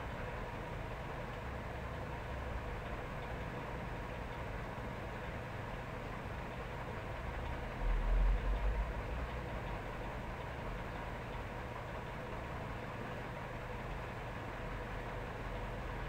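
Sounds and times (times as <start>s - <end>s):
faint hum: 0.0s - 16.0s
low rumble: 7.5s - 10.0s.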